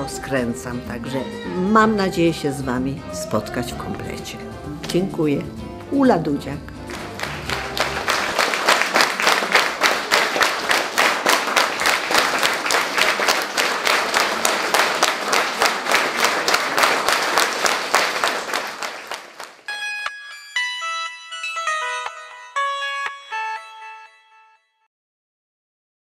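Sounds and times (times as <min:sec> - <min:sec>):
audience clapping in rhythm: 0:06.7 - 0:20.6.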